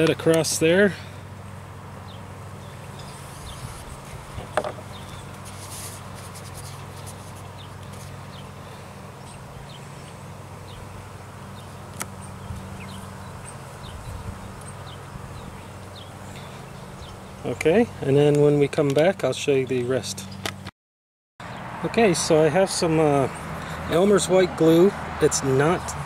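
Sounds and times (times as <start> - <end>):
low buzzing hum: 0.0 - 20.7.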